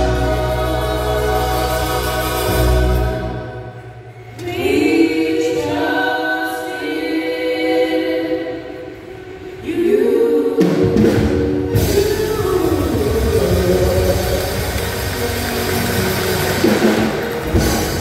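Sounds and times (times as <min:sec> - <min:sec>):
vocal group singing gospel: 0:00.0 - 0:18.0.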